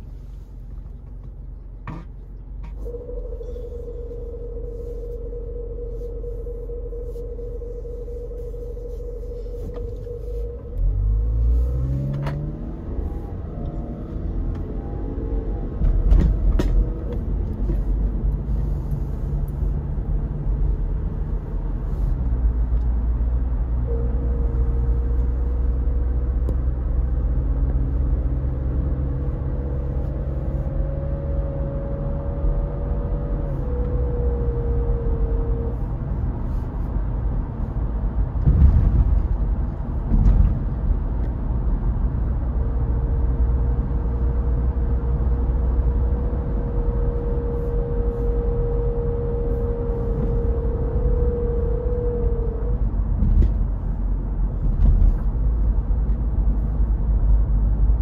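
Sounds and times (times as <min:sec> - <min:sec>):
car engine and tyre rumble: 0:00.0 - 0:58.0
faint whine: 0:02.0 - 0:39.4.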